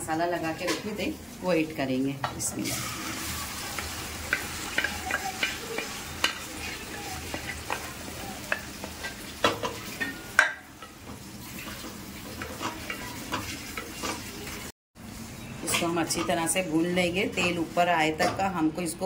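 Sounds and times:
sizzle of frying: 0:00.0 - 0:19.0
spatula scraping on steel: 0:03.2 - 0:14.6.

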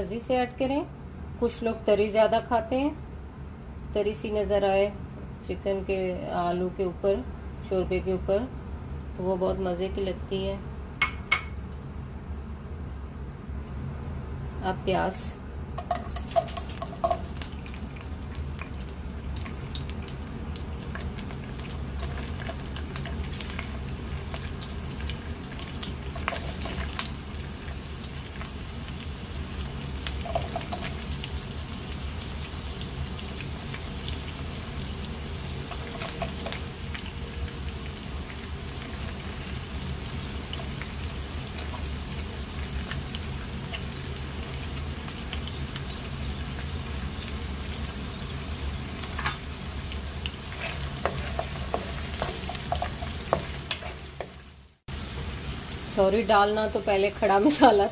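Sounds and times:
onions sizzling in oil: 0:15.2 - 0:57.9.

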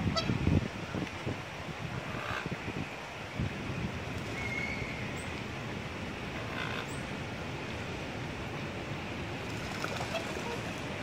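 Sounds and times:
outdoor rumble and hiss: 0:00.0 - 0:11.0
faint whistled bird call: 0:04.4 - 0:05.3.

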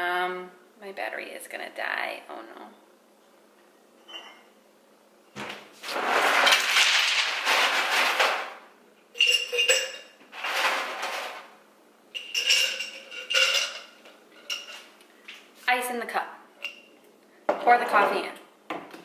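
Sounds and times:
ice rustling in freezer drawer: 0:05.8 - 0:08.6, 0:10.3 - 0:11.6
ice cubes clinking into glass jar: 0:09.2 - 0:11.5, 0:12.2 - 0:14.7.

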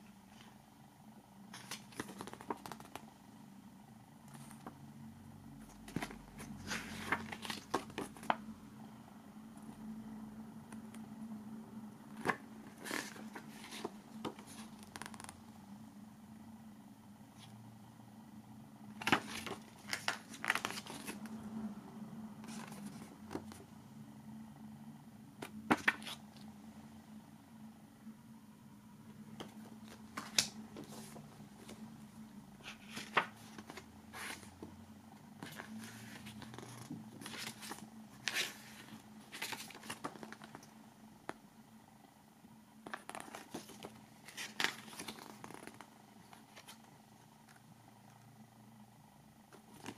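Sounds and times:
faint steady hum: 0:00.0 - 0:49.9
paper pages rustling: 0:01.5 - 0:03.1, 0:05.6 - 0:08.4, 0:12.1 - 0:15.4, 0:18.9 - 0:21.4, 0:22.4 - 0:23.6, 0:25.4 - 0:26.5, 0:29.4 - 0:31.9, 0:32.6 - 0:34.7, 0:35.4 - 0:40.7, 0:42.9 - 0:47.0, 0:49.6 - 0:49.9.

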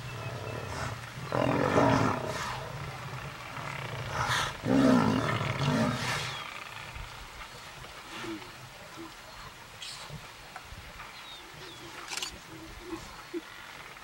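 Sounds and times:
deep growling bellowing: 0:00.0 - 0:06.5.

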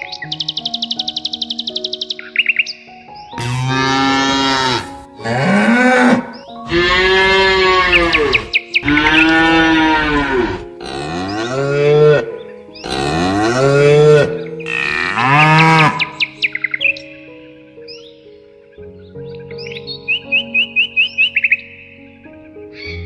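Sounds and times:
cattle mooing: 0:03.4 - 0:16.2.

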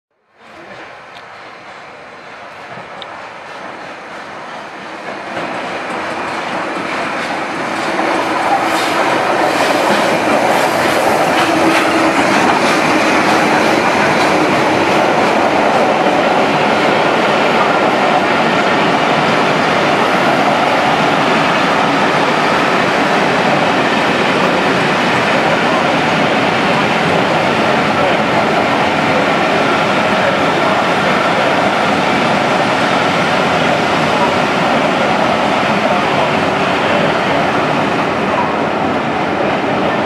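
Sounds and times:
steam train passing: 0:00.3 - 0:40.0.

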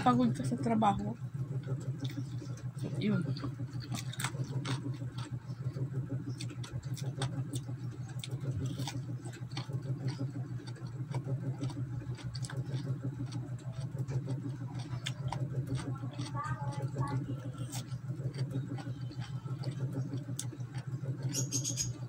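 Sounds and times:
low hum: 0:00.0 - 0:22.0
chewing crisp cucumber: 0:01.4 - 0:22.0.

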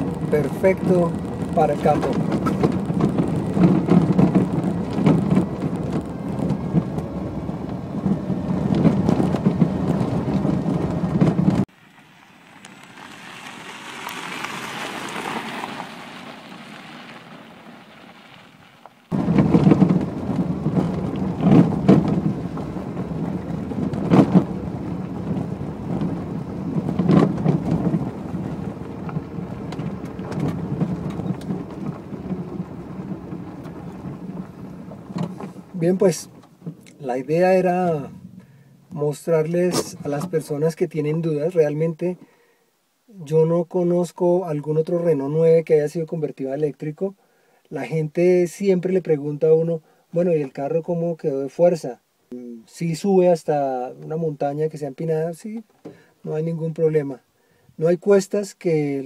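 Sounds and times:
car body knocks and rattles: 0:00.0 - 0:11.7, 0:19.1 - 0:36.8
tyres crunching on gravel: 0:00.0 - 0:42.0
car road rumble: 0:00.0 - 0:42.2.

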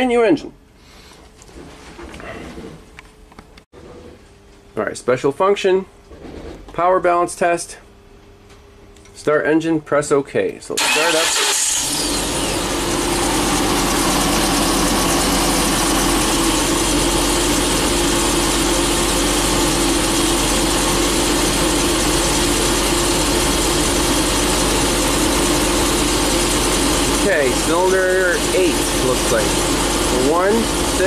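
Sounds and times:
engine idling with misfire: 0:10.8 - 0:31.0.

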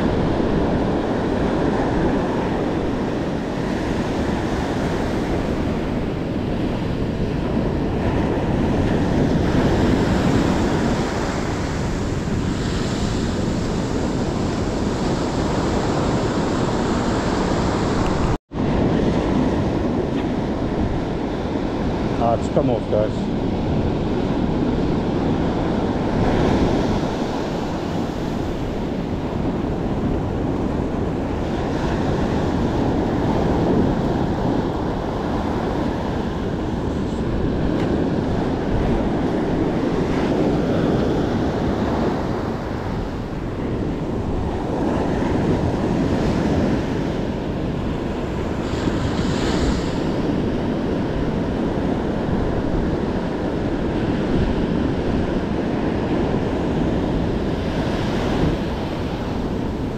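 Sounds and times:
ocean surf breaking: 0:00.0 - 0:59.9
wind on microphone: 0:00.0 - 0:59.9.

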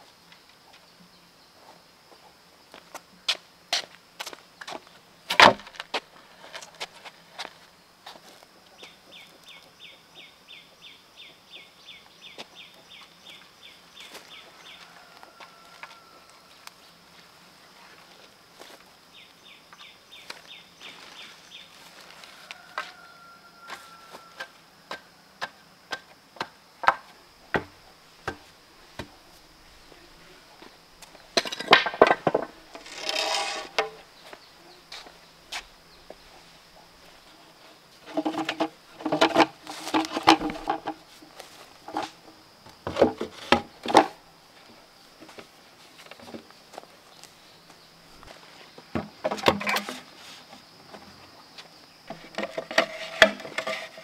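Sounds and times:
bamboo poles clattering: 0:04.6 - 0:07.5, 0:23.7 - 0:29.9, 0:30.6 - 0:34.1, 0:38.0 - 0:44.2, 0:45.2 - 0:46.9, 0:48.2 - 0:51.3, 0:52.1 - 0:54.0
knocks and taps on bamboo: 0:05.3 - 0:05.8, 0:24.4 - 0:29.2.

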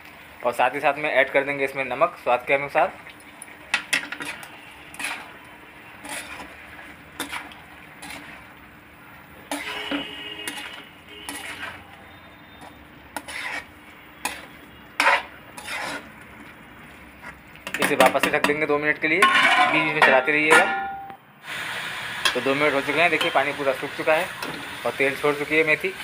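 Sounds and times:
metal spatula scraping a pan: 0:03.7 - 0:08.6, 0:09.4 - 0:16.2, 0:19.2 - 0:21.0
pan metallic ring: 0:19.2 - 0:21.2.

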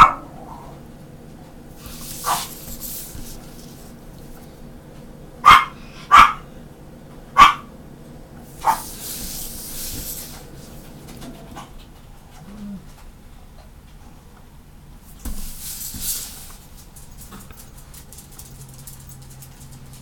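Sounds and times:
dog barking: 0:00.0 - 0:00.7, 0:02.1 - 0:02.7, 0:05.4 - 0:06.5, 0:07.3 - 0:07.7, 0:08.6 - 0:09.0.

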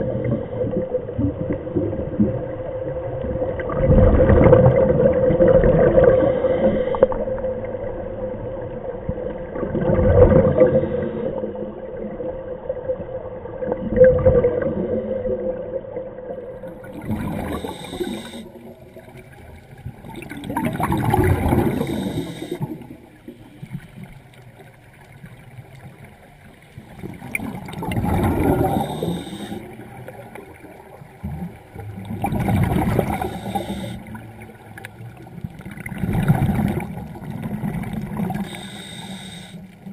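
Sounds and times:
bubbles gurgling: 0:00.0 - 0:06.4, 0:07.2 - 0:10.9, 0:12.0 - 0:15.7, 0:16.4 - 0:23.5, 0:26.8 - 0:39.9
diver breathing through regulator: 0:17.1 - 0:18.8, 0:21.1 - 0:23.8, 0:28.2 - 0:30.0, 0:32.7 - 0:34.4, 0:38.3 - 0:39.9.

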